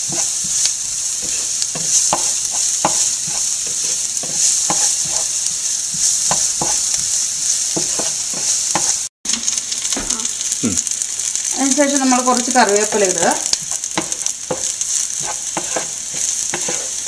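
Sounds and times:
wooden spatula scraping pan: 0.0s - 9.0s, 13.5s - 17.0s
vegetables sizzling in oil: 0.0s - 17.0s.

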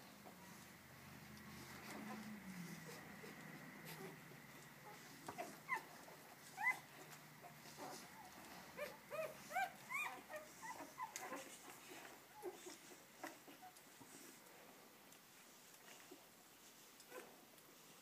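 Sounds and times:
puppies squeaking and whimpering: 5.4s - 6.9s, 7.8s - 11.6s.

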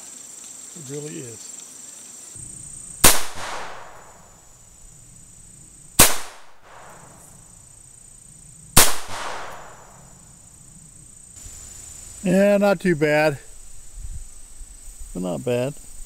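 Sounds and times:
insects chirring: 0.0s - 16.0s
pistol shots: 2.9s - 4.5s, 6.0s - 7.4s, 8.8s - 10.1s.

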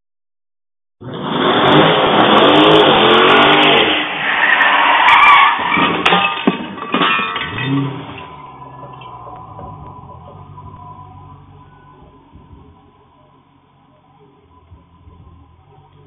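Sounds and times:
car engine revving: 1.0s - 6.1s, 7.4s - 16.0s
tyres squealing: 4.1s - 12.0s
car crash knocks and crunches: 5.6s - 9.9s.

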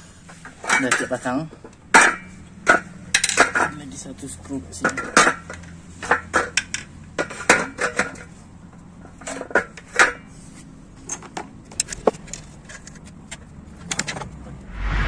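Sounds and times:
metal engine parts clinking: 2.0s - 4.0s.

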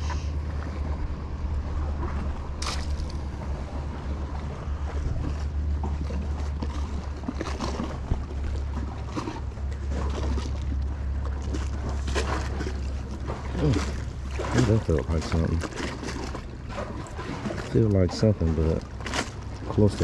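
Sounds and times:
wind rumbling on microphone: 0.0s - 18.1s.

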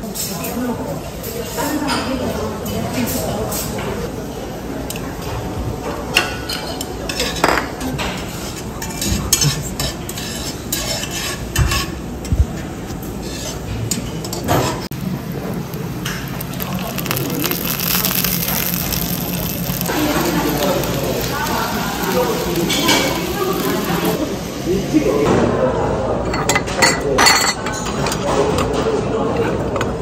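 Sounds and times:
tableware clinking: 6.1s - 11.9s, 22.6s - 23.5s, 26.3s - 28.2s
oil sizzling in a pan: 14.9s - 25.2s.

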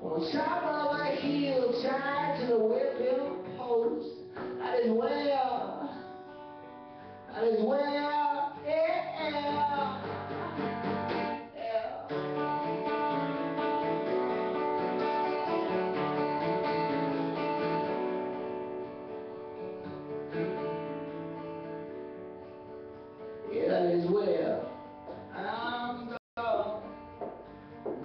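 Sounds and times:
person singing: 0.0s - 6.2s, 7.3s - 10.8s, 11.5s - 13.7s
acoustic guitar strumming chords: 0.0s - 28.0s.

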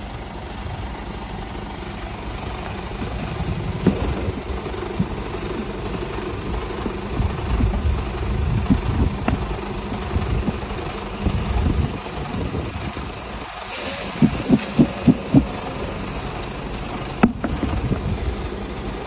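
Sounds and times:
truck engine idling: 0.0s - 19.0s
quick thumps: 2.7s - 7.8s.

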